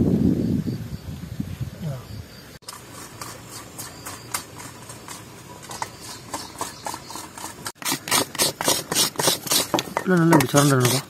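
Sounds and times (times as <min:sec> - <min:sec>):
hand scraping strokes: 0:02.6 - 0:11.0.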